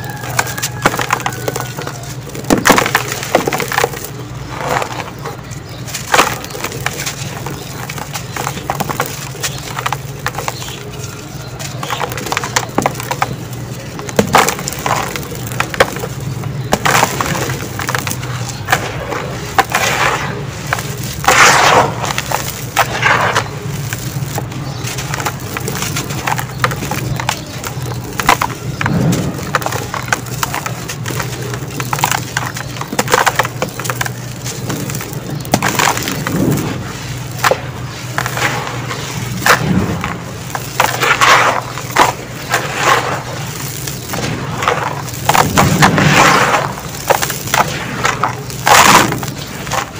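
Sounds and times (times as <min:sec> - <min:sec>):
gritty crunching by hand: 0:00.0 - 0:49.9
grains falling into tub: 0:19.5 - 0:36.6, 0:39.3 - 0:49.9.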